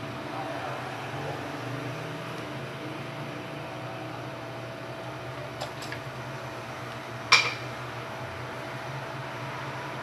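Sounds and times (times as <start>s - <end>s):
steady fan hum: 0.0s - 10.0s.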